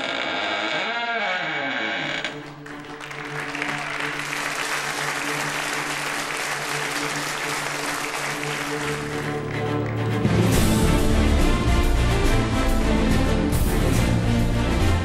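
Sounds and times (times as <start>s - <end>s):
music with long held notes: 2.1s - 15.0s
audience applauding: 2.3s - 10.6s.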